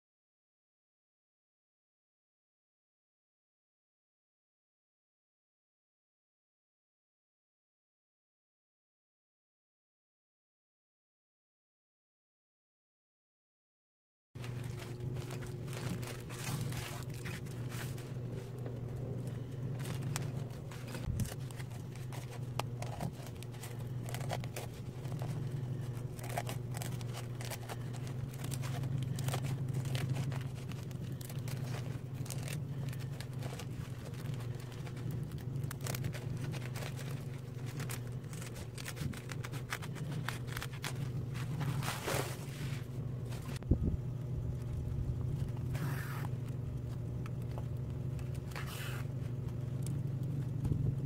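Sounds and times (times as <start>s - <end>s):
plastic sack crinkling: 14.4s - 43.6s
steady low hum: 14.4s - 51.0s
scissors snipping: 19.8s - 41.4s.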